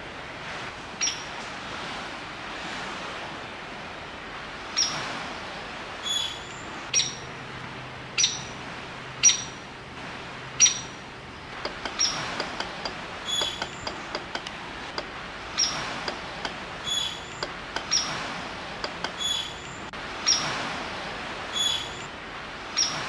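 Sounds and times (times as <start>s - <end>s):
woodpecker tapping on wood: 11.6s - 18.2s, 18.8s - 19.4s.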